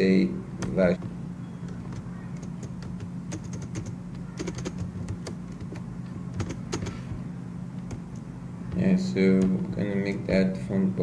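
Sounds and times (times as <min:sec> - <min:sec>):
keyboard typing clicks: 0:00.6 - 0:07.0.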